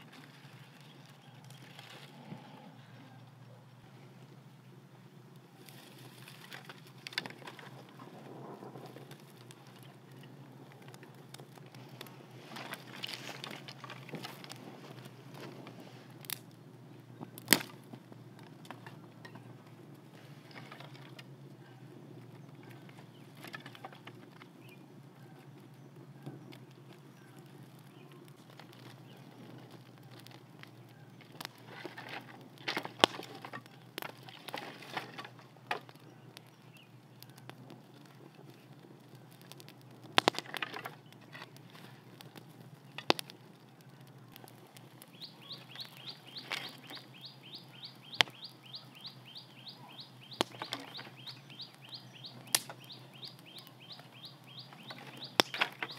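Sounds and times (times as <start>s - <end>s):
sticks rustling and clattering: 5.6s - 16.5s, 17.4s - 21.4s, 22.5s - 24.5s, 28.3s - 36.0s, 40.0s - 43.6s, 45.8s - 47.1s, 54.7s - 55.9s
sharp snaps of twigs: 16.2s - 16.5s, 17.4s - 17.8s, 39.6s - 43.4s, 44.4s - 55.9s.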